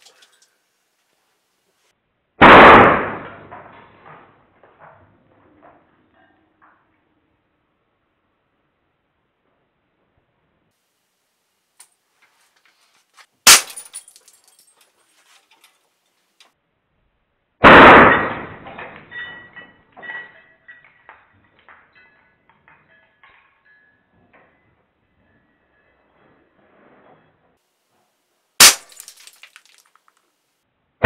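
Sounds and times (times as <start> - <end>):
air rifle shot crack: 2.4 - 3.4, 17.6 - 18.6
watch shattering crash: 13.4 - 14.8, 28.6 - 30.1
metal pieces bouncing on floor: 13.5 - 14.9, 18.6 - 24.6, 28.7 - 30.2.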